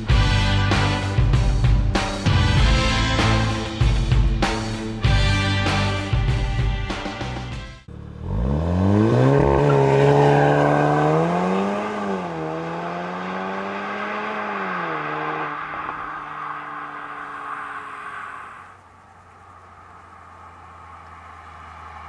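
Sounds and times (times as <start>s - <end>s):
car engine accelerating hard: 7.9s - 22.0s.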